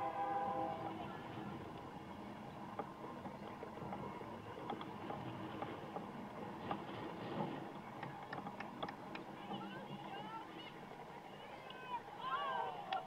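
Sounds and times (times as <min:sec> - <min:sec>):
faint knocks and clicks: 0:02.7 - 0:10.2.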